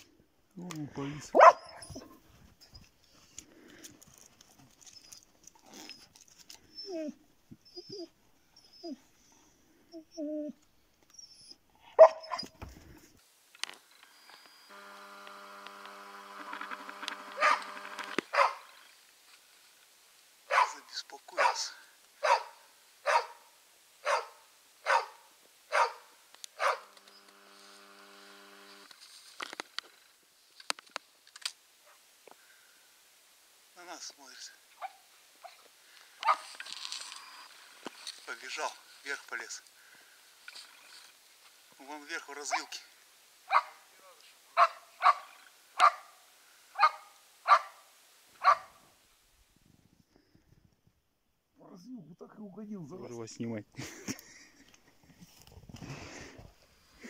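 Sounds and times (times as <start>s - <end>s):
dogs barking: 1.4s - 2.1s, 11.9s - 12.5s, 17.4s - 17.7s, 18.3s - 18.7s, 20.5s - 26.9s, 43.5s - 43.8s, 44.6s - 46.2s, 46.8s - 47.8s, 48.4s - 48.8s
dog whining: 1.4s - 2.9s, 4.8s - 9.3s, 9.9s - 12.6s
faint steady tone: 12.2s - 17.2s
sharp clicks: 15.2s - 18.3s.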